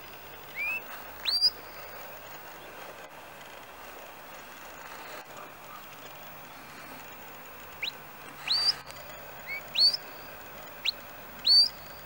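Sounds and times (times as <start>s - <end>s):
shepherd's whistle calls: 0.5s - 1.6s, 7.8s - 12.0s.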